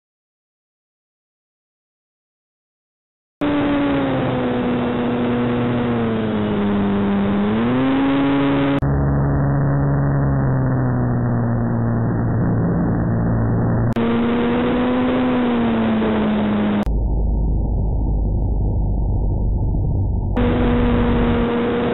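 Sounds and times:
model plane motor whining: 0:03.4 - 0:11.0, 0:14.0 - 0:16.9, 0:20.4 - 0:21.9.

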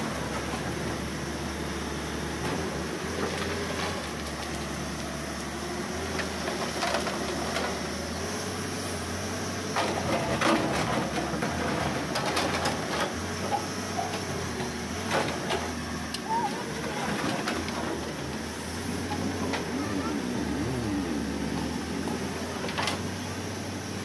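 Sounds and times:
excavator diesel engine running: 0:00.0 - 0:24.0
background voices: 0:16.3 - 0:23.4.

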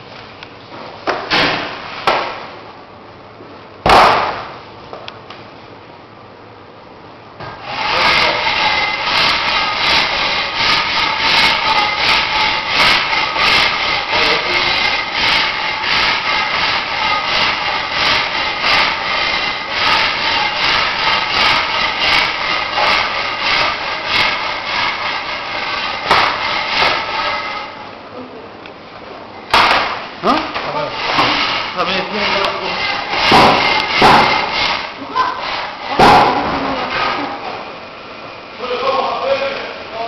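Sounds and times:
machine running loudly: 0:07.6 - 0:28.0, 0:29.5 - 0:37.9.

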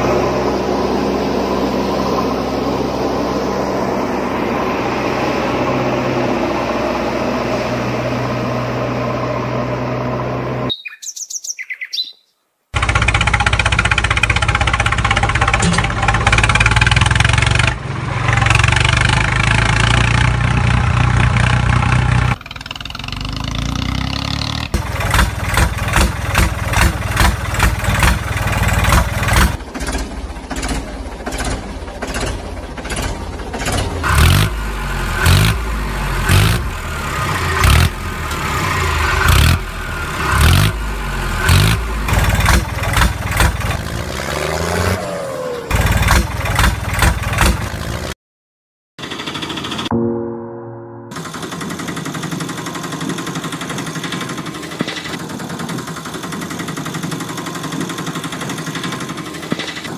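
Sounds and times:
engine chugging: 0:12.8 - 0:44.3, 0:45.7 - 0:48.2, 0:49.0 - 0:50.0, 0:51.1 - 0:59.9.

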